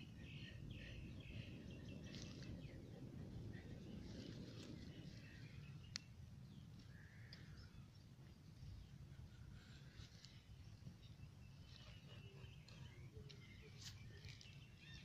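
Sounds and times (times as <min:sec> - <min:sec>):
low steady rumble: 0:00.0 - 0:15.0
distant bird chirps: 0:08.7 - 0:15.0.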